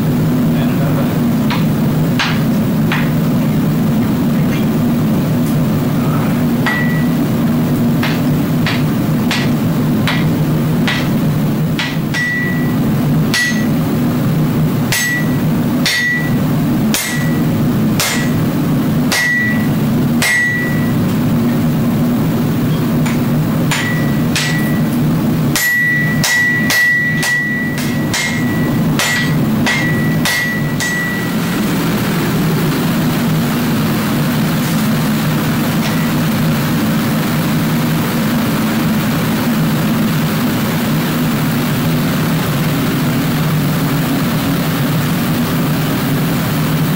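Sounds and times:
steady low drone: 0:00.0 - 0:46.9
hammer blows on anvil: 0:01.4 - 0:03.3, 0:06.6 - 0:07.3, 0:08.0 - 0:13.9, 0:14.9 - 0:18.5, 0:19.1 - 0:21.2, 0:23.0 - 0:31.6, 0:35.8 - 0:36.3.

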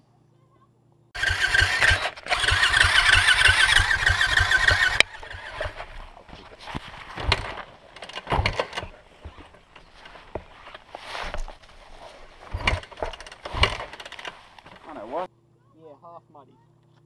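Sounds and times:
loud engine running: 0:01.2 - 0:10.5
knocks and clicks: 0:01.2 - 0:15.0.

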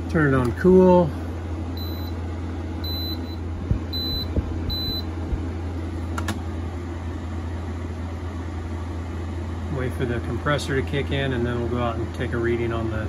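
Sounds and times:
air conditioner beeping: 0:00.0 - 0:13.0
air conditioner humming: 0:00.0 - 0:13.0
sharp click: 0:06.1 - 0:06.4.

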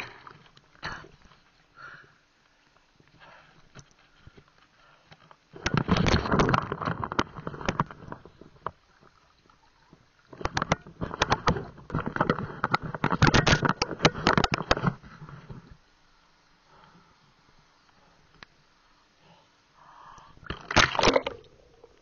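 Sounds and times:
water splashing and sloshing: 0:02.4 - 0:15.9, 0:20.3 - 0:22.0.

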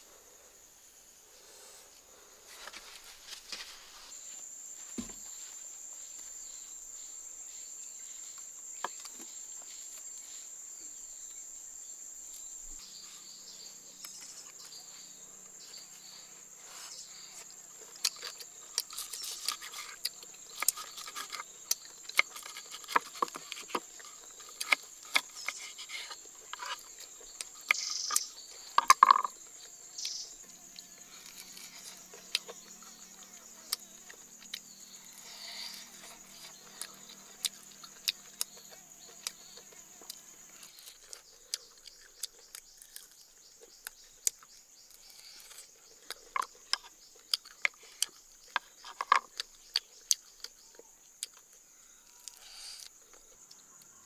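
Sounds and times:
high drone of insects: 0:00.0 - 0:54.0
knocks on wooden board: 0:05.0 - 0:05.2
knife cutting and scraping ribs: 0:16.6 - 0:29.4, 0:30.6 - 0:33.1.

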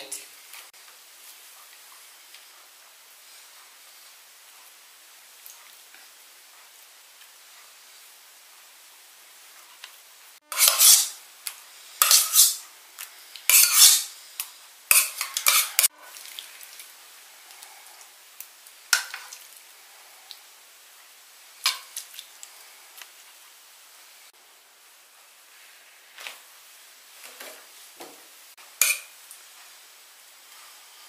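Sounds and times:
spoon scraping frying pan: 0:10.5 - 0:11.2, 0:12.0 - 0:12.6, 0:13.5 - 0:14.1, 0:14.9 - 0:16.9, 0:18.9 - 0:19.4, 0:21.6 - 0:22.1, 0:28.7 - 0:29.3
spoon clinking dishes: 0:28.8 - 0:29.1.

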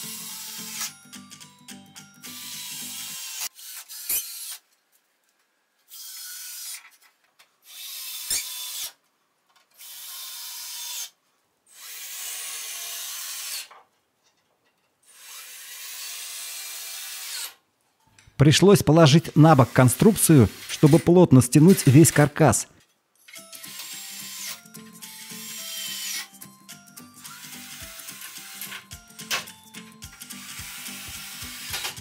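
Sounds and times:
cordless drill driving screws: 0:15.1 - 0:17.6, 0:19.3 - 0:22.4, 0:23.3 - 0:26.3, 0:30.3 - 0:32.0.

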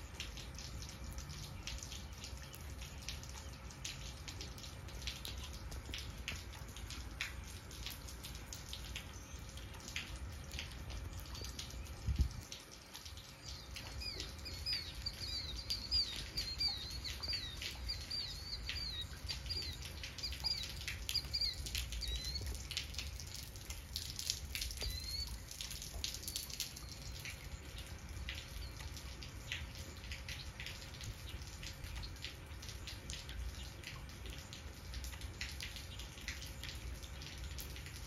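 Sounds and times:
light rain pattering: 0:00.0 - 0:38.0
bird chirping: 0:13.4 - 0:22.7, 0:24.7 - 0:25.5.

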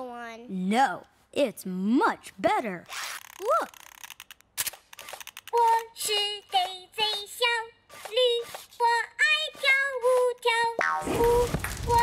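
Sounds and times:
sharp clicks: 0:03.2 - 0:07.3
toy singing in squeaky voice: 0:05.5 - 0:10.8.

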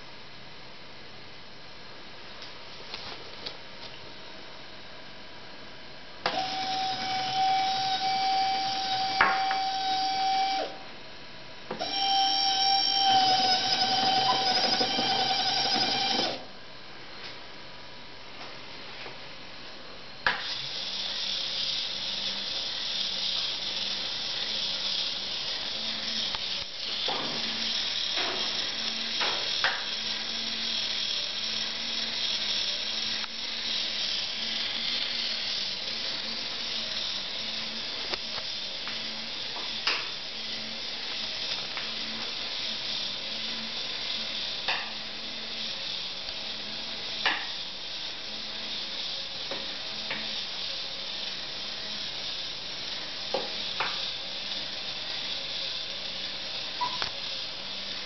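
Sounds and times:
speaker hissing with low beat: 0:20.2 - 0:58.0.

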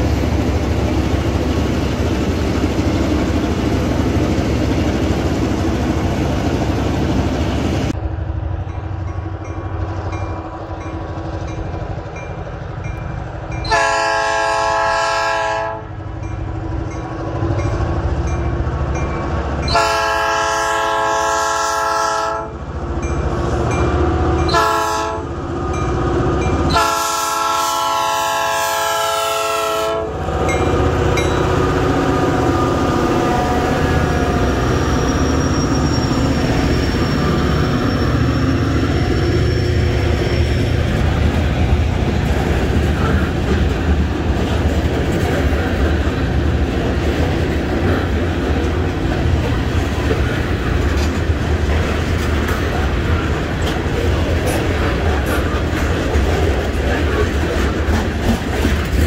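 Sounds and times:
diesel locomotive engine rumbling: 0:00.0 - 0:59.0
train air horn blasts: 0:13.7 - 0:16.0, 0:19.7 - 0:22.5, 0:24.5 - 0:25.3, 0:26.7 - 0:30.5
train wheels clattering over rails: 0:30.3 - 0:59.0.

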